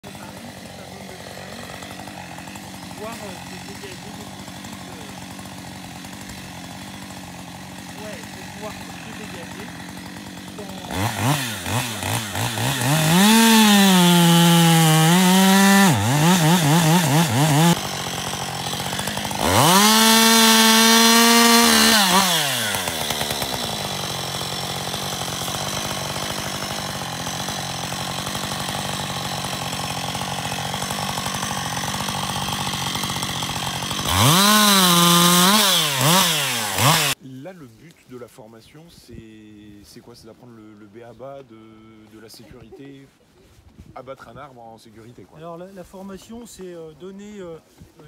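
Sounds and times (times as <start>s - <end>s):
chainsaw cutting log: 0.0s - 37.2s.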